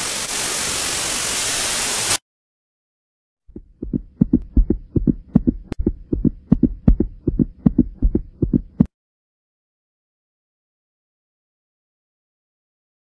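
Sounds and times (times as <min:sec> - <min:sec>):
rapid pounding heartbeat: 0:03.5 - 0:08.9.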